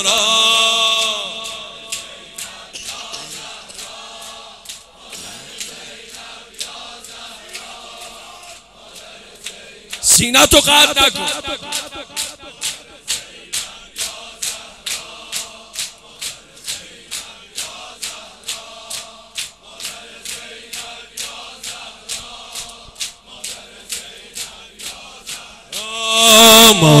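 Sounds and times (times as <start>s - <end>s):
amplified singing voice: 0.0s - 27.0s
hand slaps on chests: 10.9s - 25.4s.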